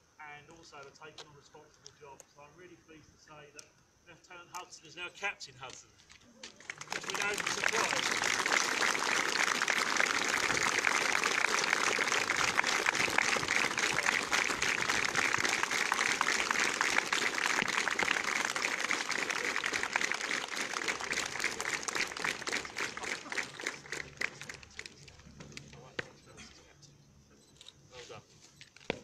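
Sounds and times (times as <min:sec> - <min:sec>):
crowd applauding: 0:06.4 - 0:25.1.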